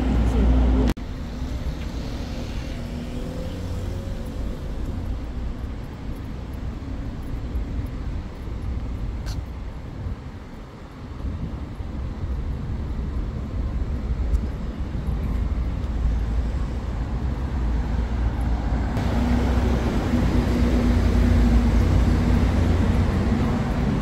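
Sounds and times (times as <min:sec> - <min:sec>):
low rumble of traffic: 0:00.0 - 0:24.0
vehicle passing close: 0:01.1 - 0:05.7, 0:16.5 - 0:24.0.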